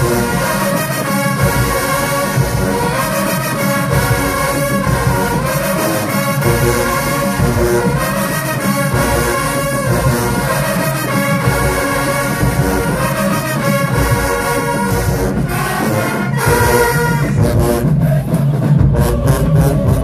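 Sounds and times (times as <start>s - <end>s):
marching band brass playing: 0.0s - 20.0s.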